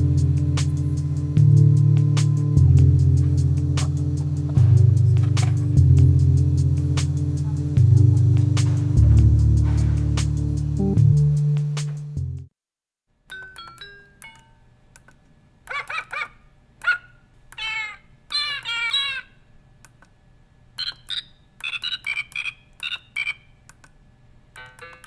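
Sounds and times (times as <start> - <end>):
guitar music: 0.0 - 12.4.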